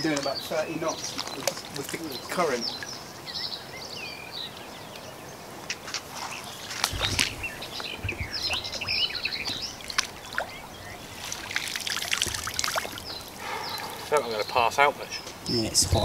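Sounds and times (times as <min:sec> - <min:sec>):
songbird chirping: 0:00.0 - 0:16.0
water splashing: 0:06.0 - 0:16.0.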